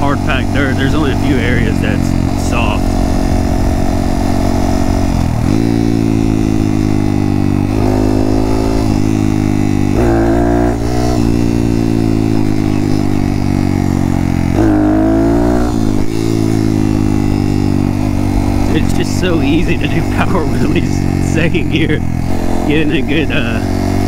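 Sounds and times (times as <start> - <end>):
motorcycle engine revving: 0.0 - 24.0.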